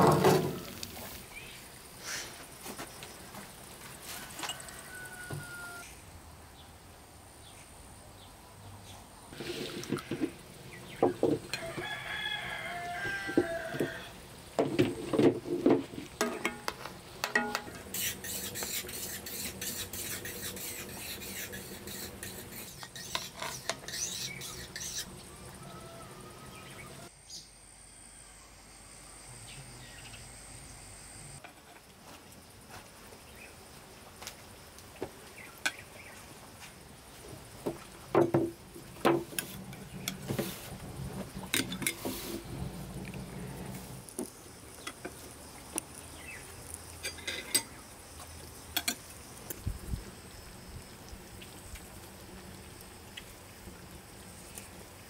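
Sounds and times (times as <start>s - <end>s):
rooster crowing: 4.0s - 6.0s, 11.5s - 14.2s, 25.2s - 27.1s
spoon clinking against pan and plate: 16.2s - 18.4s.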